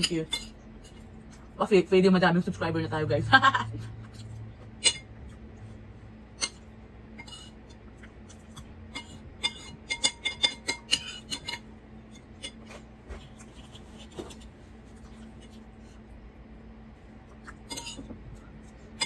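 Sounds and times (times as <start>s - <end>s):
metal spoon clinking on ceramic bowl: 8.9s - 11.6s, 17.7s - 18.1s.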